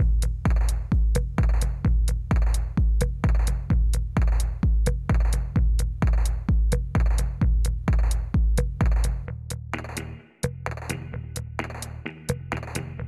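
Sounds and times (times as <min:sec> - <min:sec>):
booming kick drum: 0:00.0 - 0:10.0
hi-hat ticks: 0:00.0 - 0:13.0.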